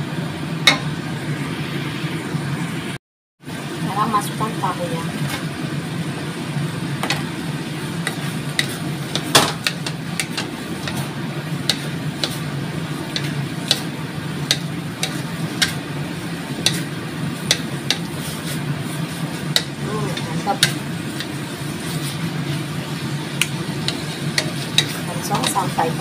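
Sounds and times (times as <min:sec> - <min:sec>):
steady low hum: 0:00.0 - 0:26.0
sauce frying: 0:03.4 - 0:26.0
wooden spatula scraping a wok: 0:07.9 - 0:15.9, 0:16.5 - 0:26.0.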